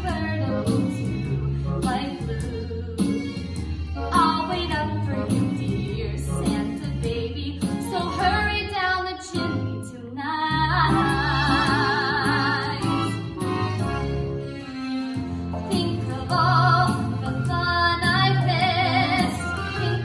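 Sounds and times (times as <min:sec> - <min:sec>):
woman singing: 0:00.0 - 0:01.2, 0:01.8 - 0:03.4, 0:04.1 - 0:13.0, 0:15.7 - 0:20.0
instrumental accompaniment: 0:00.0 - 0:20.0.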